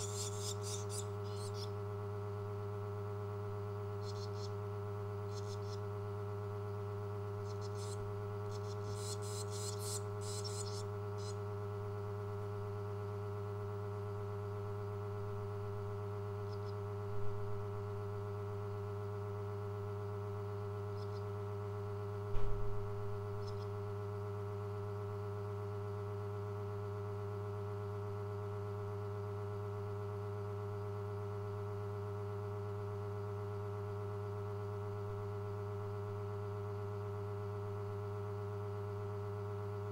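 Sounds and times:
swallow nestlings chirping: 0:00.0 - 0:01.8, 0:04.0 - 0:04.6, 0:05.2 - 0:05.8, 0:07.4 - 0:11.4
low electrical hum: 0:00.0 - 0:39.9.

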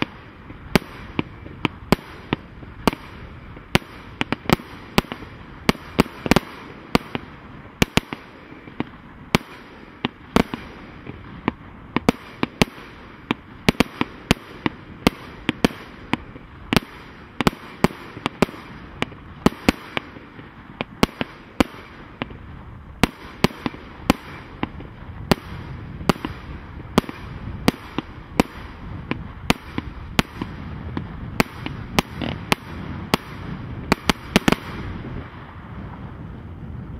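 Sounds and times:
firework barrage bangs: 0:00.0 - 0:36.9.

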